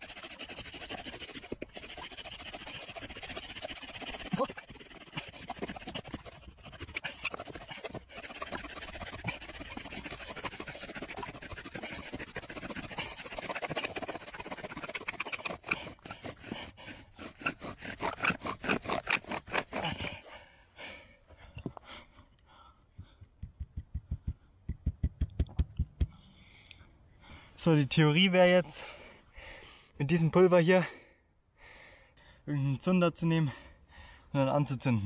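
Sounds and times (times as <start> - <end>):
bow drill spindle scraping wood: 0.0 - 20.2.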